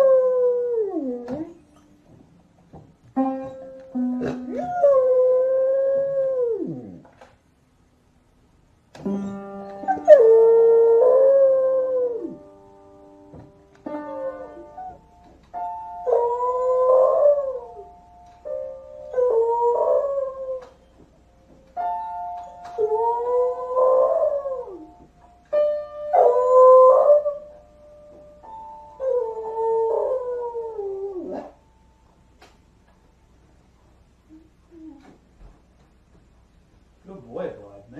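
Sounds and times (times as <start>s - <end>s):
piano notes struck by paws: 0.0s - 5.4s, 8.9s - 34.0s.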